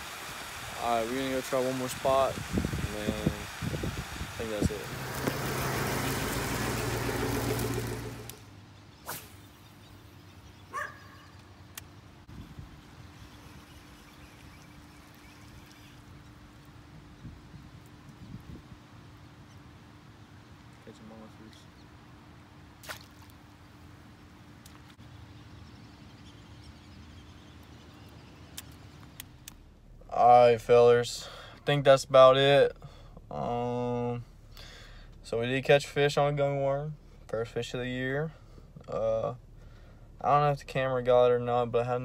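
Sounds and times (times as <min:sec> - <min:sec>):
vehicle engine idling: 0:04.2 - 0:08.6
faint hum: 0:08.2 - 0:42.0.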